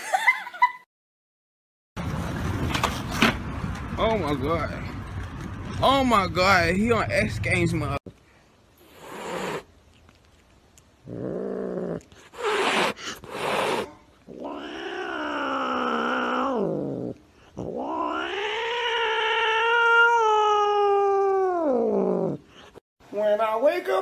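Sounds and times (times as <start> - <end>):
cat yowling: 13.6 - 16.8, 17.6 - 22.3.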